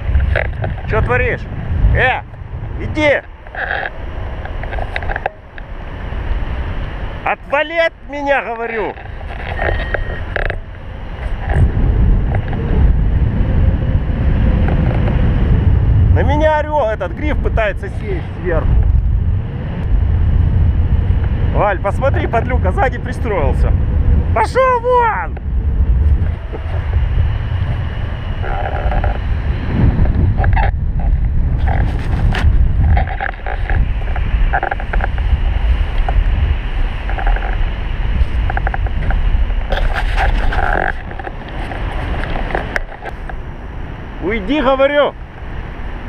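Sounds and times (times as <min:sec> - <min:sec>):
rustles and clicks: 0:00.0 - 0:01.3, 0:02.9 - 0:05.7, 0:08.4 - 0:13.0, 0:25.3 - 0:43.4
wind buffeting microphone: 0:00.0 - 0:46.0
short crackles: 0:08.6 - 0:13.0, 0:26.0 - 0:43.4.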